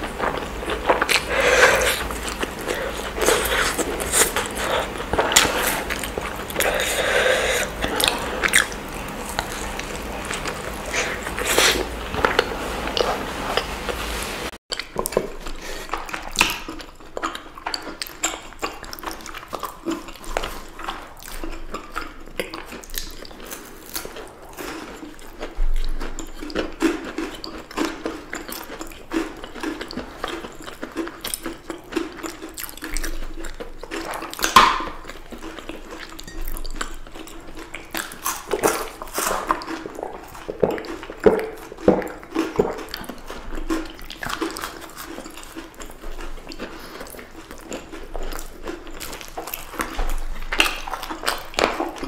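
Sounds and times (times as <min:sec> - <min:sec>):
wet mouth sounds: 0:00.0 - 0:14.0, 0:24.3 - 0:52.0
crisp bites and chewing: 0:29.4 - 0:52.0.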